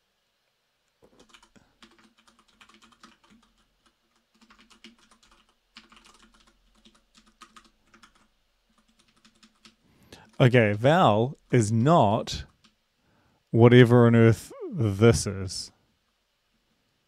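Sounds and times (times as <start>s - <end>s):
computer keyboard typing: 1.0s - 10.8s, 12.4s - 12.8s.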